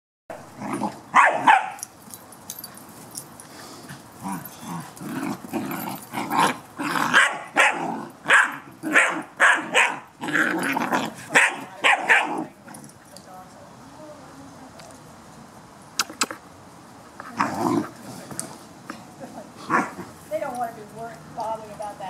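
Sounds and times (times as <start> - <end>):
puppies barking: 0.3 - 1.9, 5.5 - 12.6.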